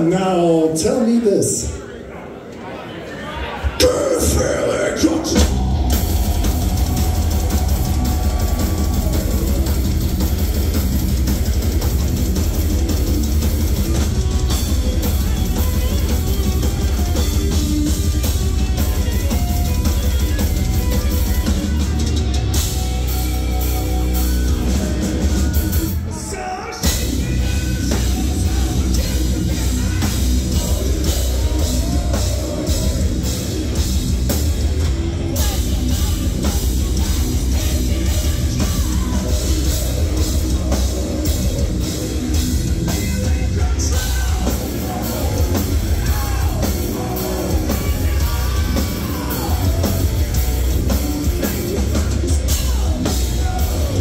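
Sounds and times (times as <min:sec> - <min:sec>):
heavy metal band playing live: 0:00.0 - 0:01.8, 0:03.6 - 0:54.0
person singing: 0:24.3 - 0:33.7, 0:35.2 - 0:42.0, 0:42.7 - 0:54.0.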